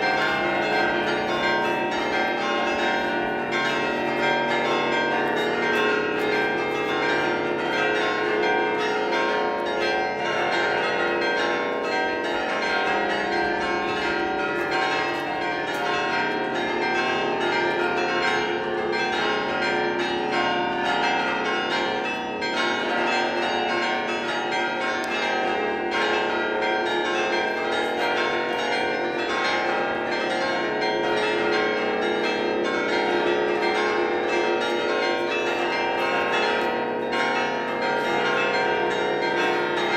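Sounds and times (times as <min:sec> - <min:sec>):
church bells ringing a peal: 0:00.0 - 0:39.9.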